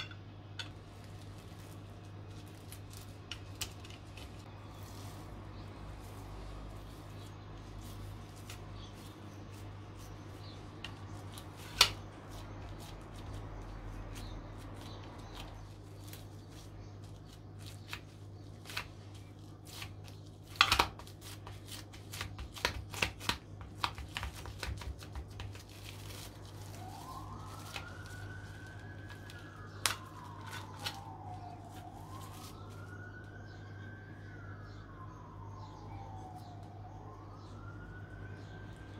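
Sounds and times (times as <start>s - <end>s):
steady low hum: 0.0s - 22.3s
cling film crinkling: 0.7s - 33.1s
siren wailing: 25.8s - 38.9s.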